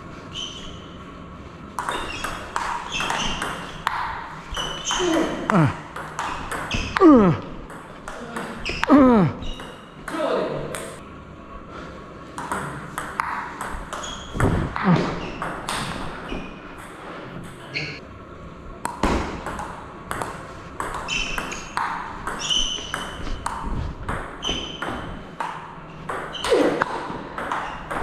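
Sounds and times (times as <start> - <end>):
ping pong ball clicking off bats: 1.8 - 5.3, 12.4 - 14.6, 18.8 - 28.0.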